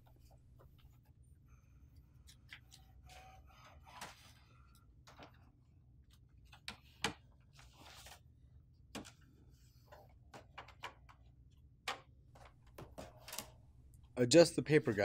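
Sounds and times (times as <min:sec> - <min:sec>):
paper rustling: 0:07.5 - 0:08.3.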